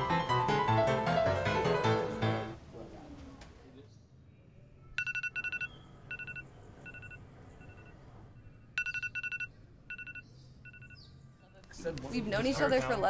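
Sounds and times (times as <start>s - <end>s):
electronic alarm beeping: 4.9s - 11.6s.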